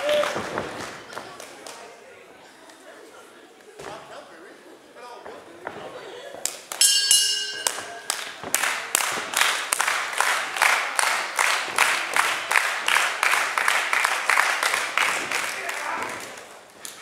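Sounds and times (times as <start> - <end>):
crowd clapping in unison: 0.0 - 1.9, 7.7 - 17.0
crowd voices: 0.0 - 17.0
ring bell ringing: 6.8 - 8.4.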